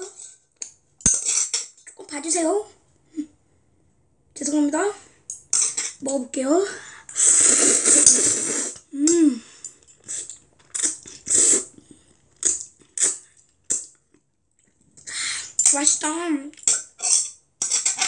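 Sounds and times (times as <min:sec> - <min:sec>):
child slurping noodles: 0:06.7 - 0:09.4, 0:10.0 - 0:13.3
child humming: 0:08.9 - 0:09.5.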